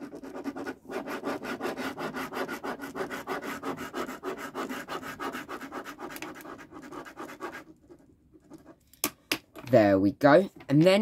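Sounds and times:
pen scribbling on paper: 0.0 - 8.7.

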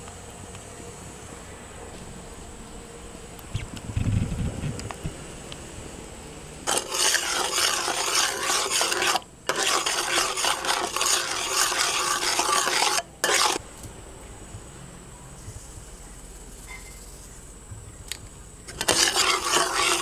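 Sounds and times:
metal spoon scraping pan: 6.7 - 13.6, 18.7 - 20.0.

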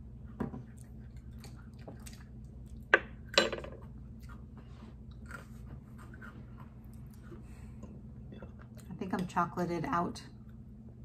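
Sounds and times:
chewing: 0.6 - 2.9.

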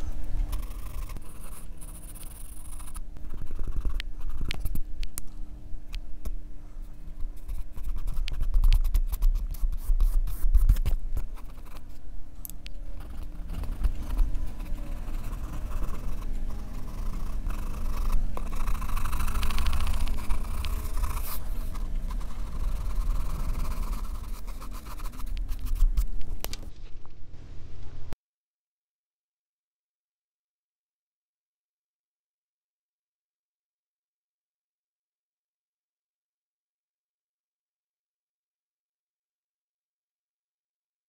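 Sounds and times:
pencil scratching on paper: 0.0 - 4.8, 7.2 - 12.0, 12.9 - 26.8.

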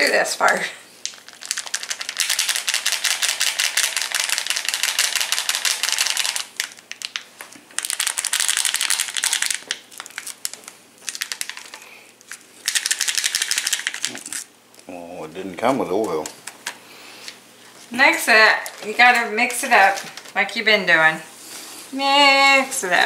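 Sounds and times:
plastic packet of granules rattling: 1.0 - 14.5.

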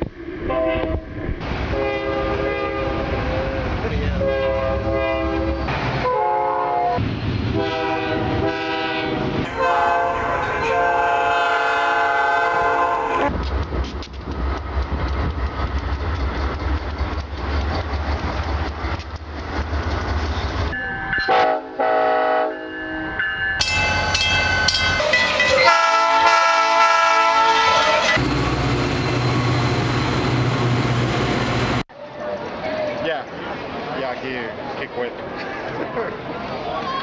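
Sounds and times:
train rumbling and clattering: 0.0 - 6.2, 6.8 - 21.3, 23.6 - 37.0
diesel locomotive engine humming: 0.0 - 36.8
locomotive horn blasts: 0.5 - 1.0, 1.8 - 3.5, 4.2 - 7.0, 7.6 - 13.3, 20.8 - 22.7, 24.8 - 28.2.

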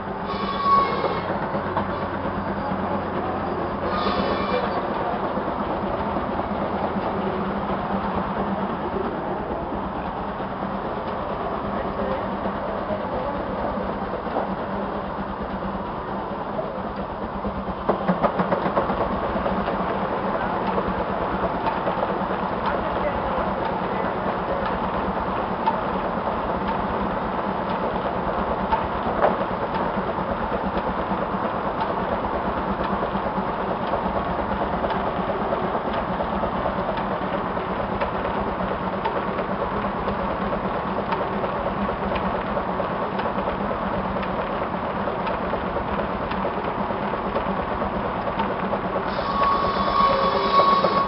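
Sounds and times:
machinery rhythmic clatter: 0.0 - 51.0
high ringing tone: 0.2 - 1.3, 49.1 - 51.0.

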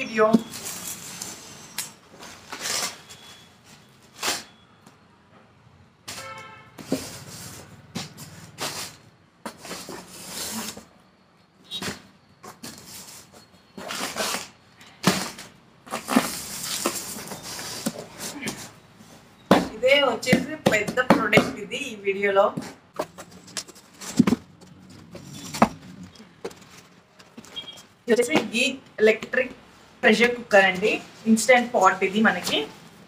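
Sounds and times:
cardboard box scraping and rustling: 8.3 - 10.9, 15.1 - 18.6.

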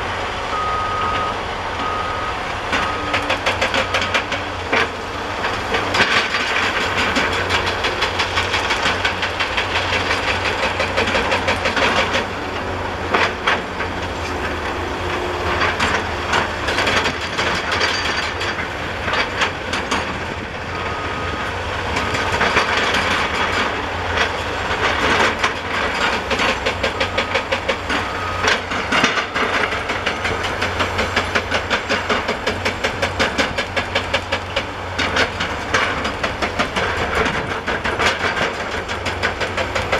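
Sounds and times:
diesel engine drone: 0.0 - 39.9
hydraulic breaker hammering stone: 25.3 - 39.9.

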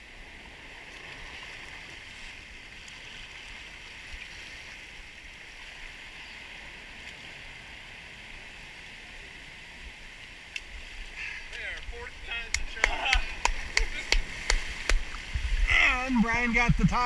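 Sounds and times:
surf breaking over rocks: 11.0 - 17.0.

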